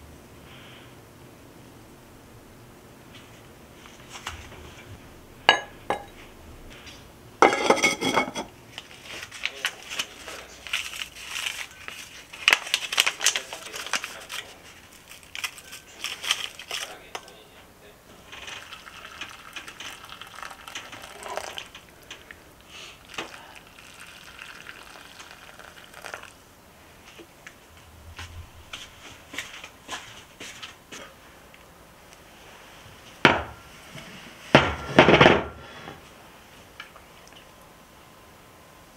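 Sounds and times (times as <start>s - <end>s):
plastic packets crinkling: 8.8s - 17.4s, 18.2s - 22.4s, 23.0s - 26.3s
hot water pouring into bowl: 18.1s - 26.4s.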